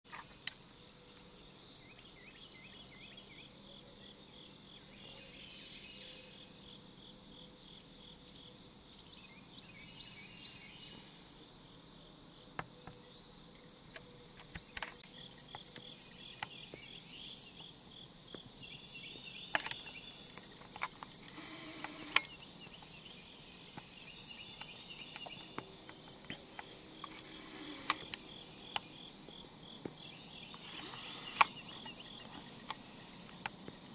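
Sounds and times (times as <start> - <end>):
insects trilling: 0.1 - 33.9
rapid pulsed insect chirping: 0.1 - 33.9
sharp clicks: 20.7 - 22.4, 26.6 - 28.9, 30.5 - 31.6.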